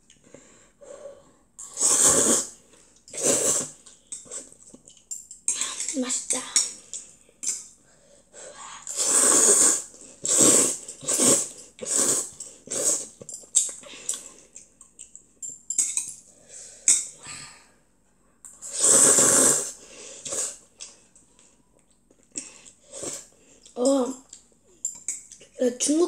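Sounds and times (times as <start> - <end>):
child slurping noodles: 1.6 - 4.6, 8.8 - 13.2, 18.6 - 20.7, 22.8 - 23.4.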